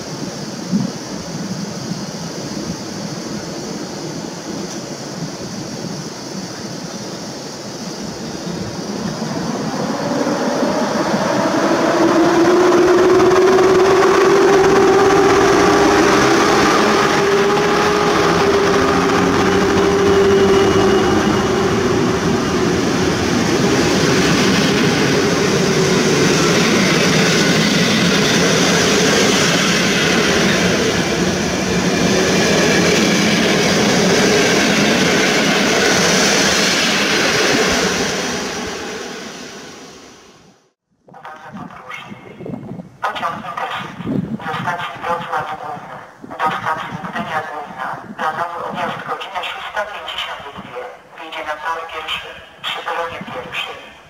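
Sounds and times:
electric locomotive hum: 0.0 - 54.0
train carriages rolling past: 7.4 - 40.5.

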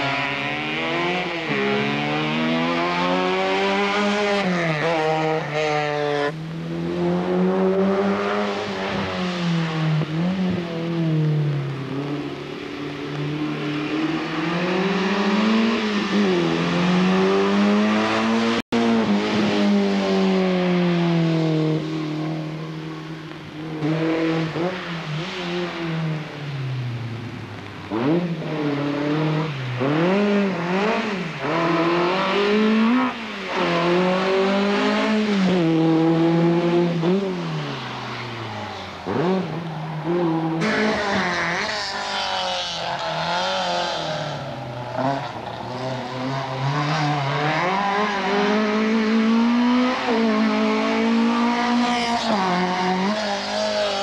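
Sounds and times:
race car engines revving: 0.0 - 54.0.

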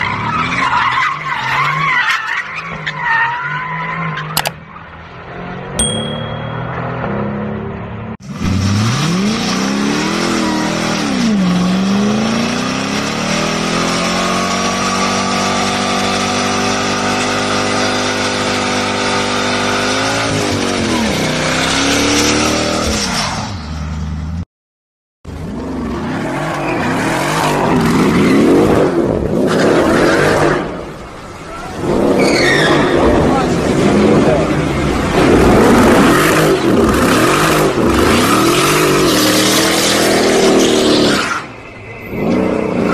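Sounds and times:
car engine revving: 31.8 - 42.9.

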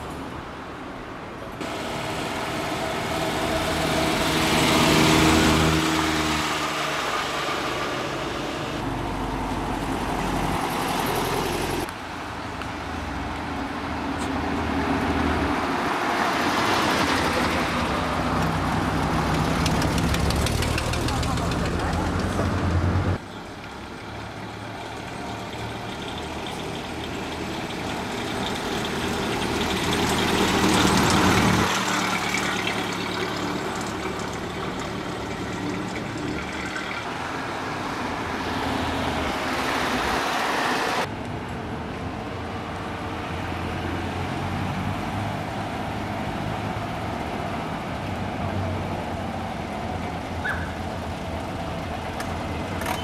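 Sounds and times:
car engines passing slowly: 0.0 - 53.0.

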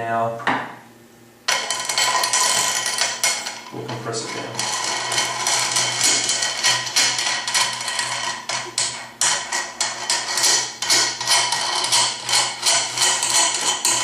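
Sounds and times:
metal clicking and clinking: 1.5 - 14.0.

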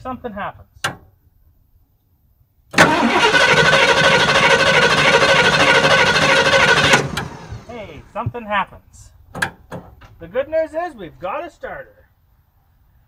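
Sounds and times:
starter motor cranking: 2.8 - 7.8.

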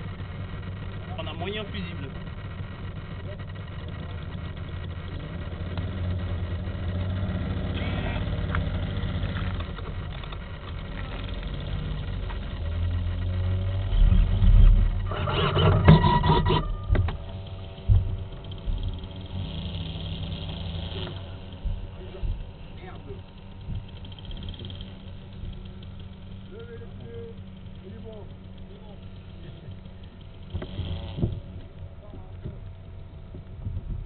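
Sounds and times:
small engine running muffled: 0.0 - 34.0
loud knocks and rattles: 13.9 - 19.4.

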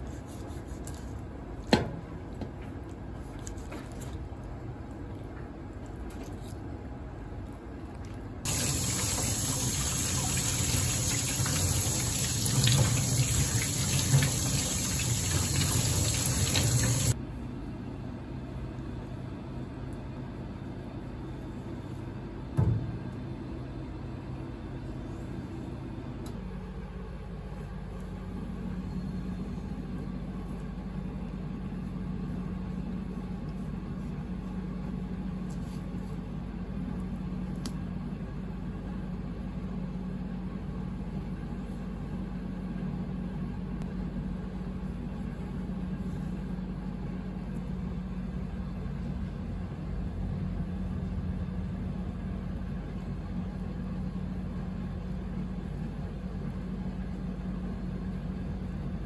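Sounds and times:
low steady hum: 0.0 - 59.0
tap water running into sink: 8.5 - 17.2.

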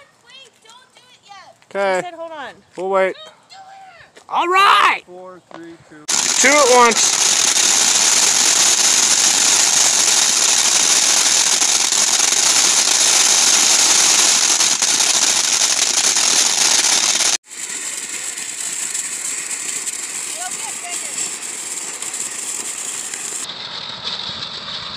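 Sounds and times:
firework fountain hissing: 6.0 - 24.9.

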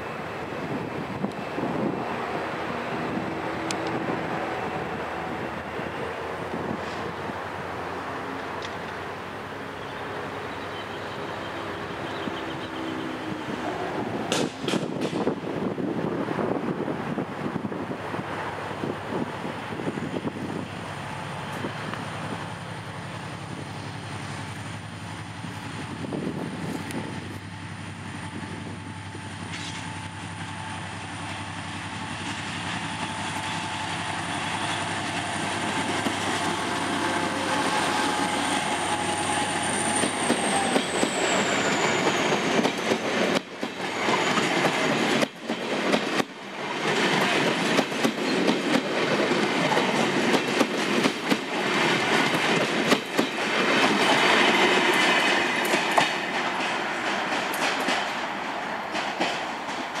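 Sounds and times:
diesel locomotive engine hum: 0.0 - 60.0
train wheels clattering over rail joints: 14.3 - 15.4, 32.2 - 60.0.

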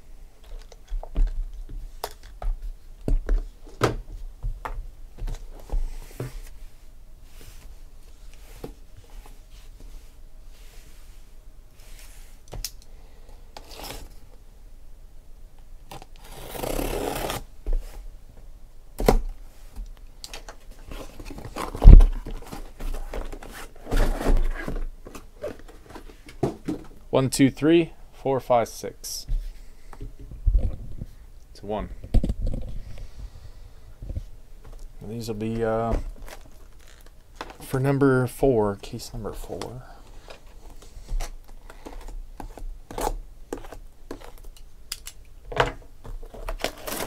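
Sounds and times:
cardboard scraping and tearing: 16.2 - 17.5, 46.2 - 47.0.

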